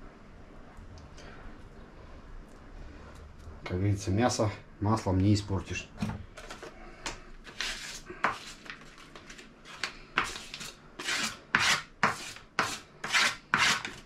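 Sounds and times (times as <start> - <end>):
knife scraping against a board: 7.4 - 14.0.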